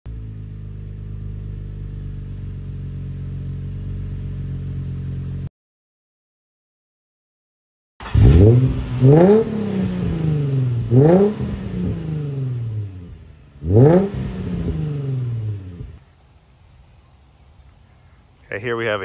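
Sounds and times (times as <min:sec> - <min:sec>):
car engine starting and revving: 0:00.1 - 0:05.5, 0:08.0 - 0:16.0.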